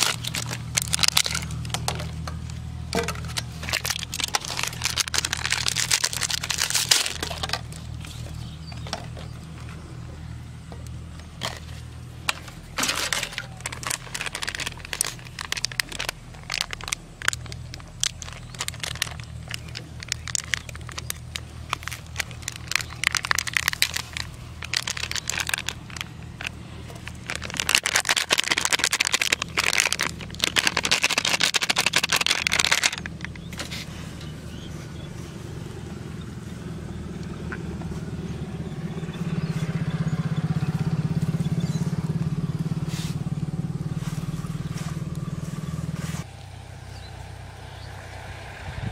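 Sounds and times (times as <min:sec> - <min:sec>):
paper cake cups crinkling: 0:00.0 - 0:10.0, 0:10.7 - 0:34.1
engine hum: 0:00.0 - 0:48.9.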